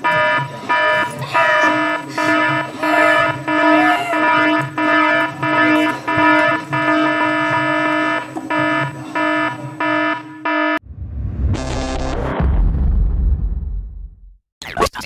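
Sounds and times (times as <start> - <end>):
pulsing electronic buzzer: 0.0 - 10.8.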